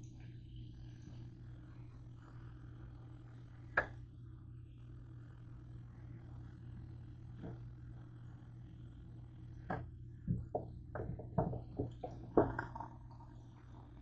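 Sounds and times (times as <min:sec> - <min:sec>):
low hum: 0:00.0 - 0:14.0.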